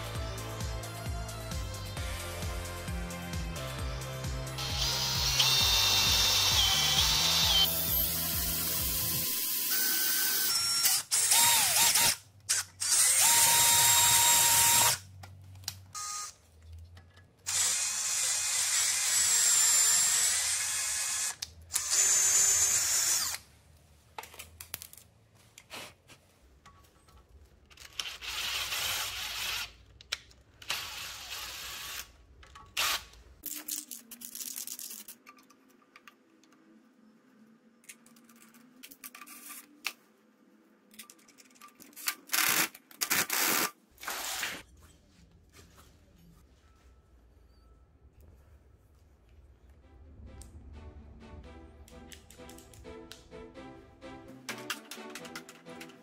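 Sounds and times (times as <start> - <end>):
rotary tool grinding metal: 17.5 - 23.4.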